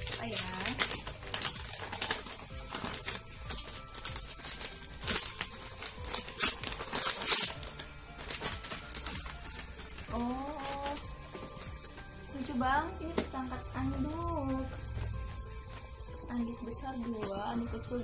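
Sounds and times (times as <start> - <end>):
wrapping paper crinkling and tearing: 0.0 - 12.6
background music: 0.0 - 18.0.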